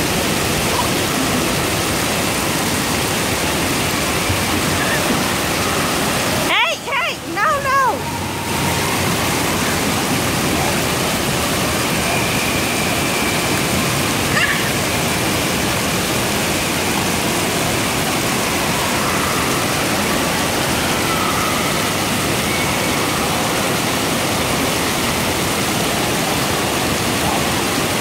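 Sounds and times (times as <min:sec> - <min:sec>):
fountain water splashing: 0:00.0 - 0:28.0.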